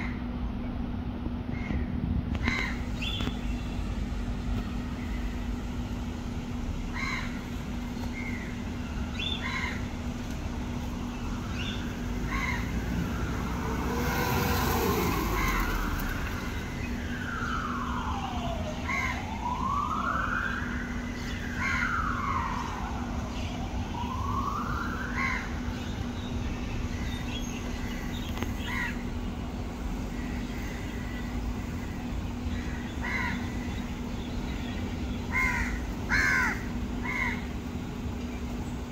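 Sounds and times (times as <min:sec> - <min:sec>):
crows cawing: 0:02.4 - 0:02.9, 0:06.9 - 0:07.5, 0:09.4 - 0:10.0, 0:12.2 - 0:13.0, 0:15.1 - 0:16.2, 0:18.9 - 0:19.2, 0:21.6 - 0:21.9, 0:25.2 - 0:25.6, 0:28.6 - 0:29.0, 0:30.1 - 0:33.9, 0:35.3 - 0:37.5
emergency vehicle siren wailing: 0:09.8 - 0:26.2.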